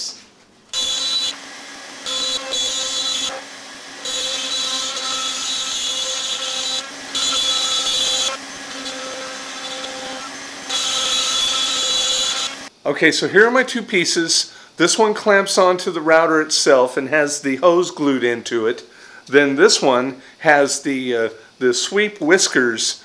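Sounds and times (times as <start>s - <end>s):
router spindle whining: 0.7s - 12.7s.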